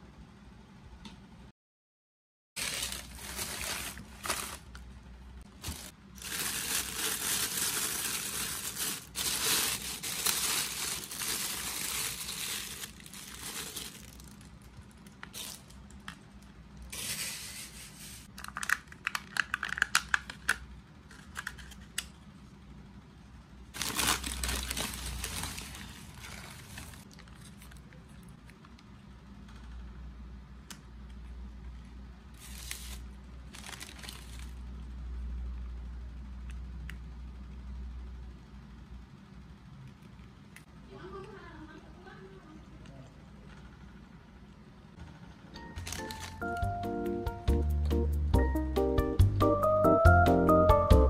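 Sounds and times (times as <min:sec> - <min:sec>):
plastic packaging rustling: 0:02.6 - 0:04.9, 0:05.5 - 0:21.9, 0:23.7 - 0:28.2, 0:32.4 - 0:34.7, 0:45.8 - 0:46.8.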